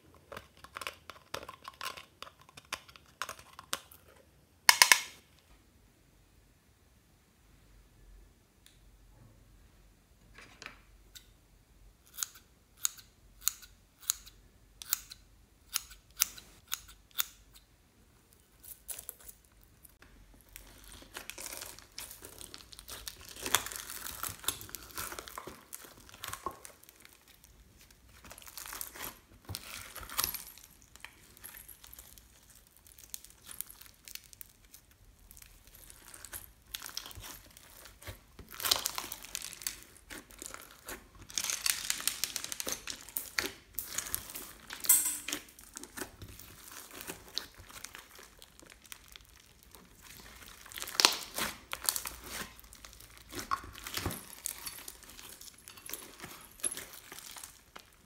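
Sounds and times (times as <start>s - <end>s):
slime crackling and crinkling: 18.3s - 58.0s.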